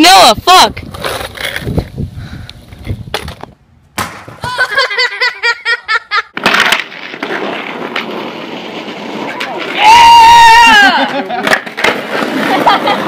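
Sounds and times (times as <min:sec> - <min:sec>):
skateboard wheels rolling: 0:00.7 - 0:05.1, 0:06.3 - 0:13.0
person laughing: 0:04.4 - 0:06.3, 0:12.5 - 0:13.0
skateboard clattering on concrete: 0:06.3 - 0:09.8, 0:10.6 - 0:13.0.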